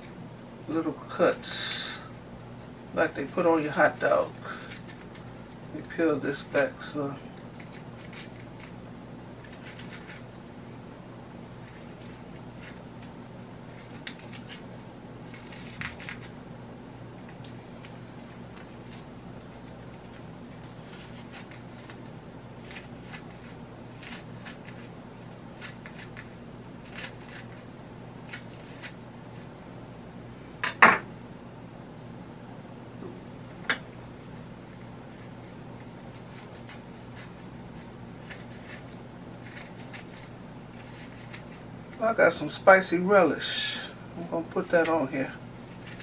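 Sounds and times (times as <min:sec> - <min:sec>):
steady low hum: 0:00.0 - 0:46.0
knife slicing onion: 0:11.6 - 0:16.4, 0:17.2 - 0:29.6, 0:34.7 - 0:42.0.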